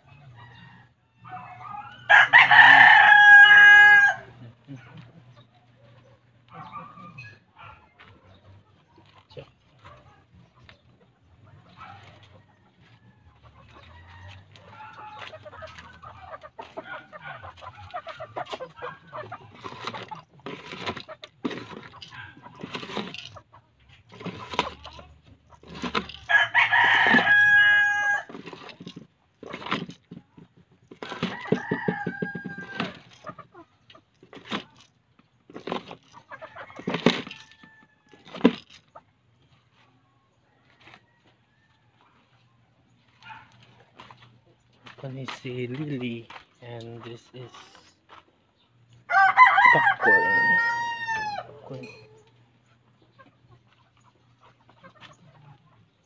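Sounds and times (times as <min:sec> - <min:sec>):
chickens clucking: 0:00.0 - 0:56.0
rooster crowing: 0:00.4 - 0:04.4, 0:26.3 - 0:28.3, 0:31.1 - 0:33.0, 0:49.1 - 0:51.5.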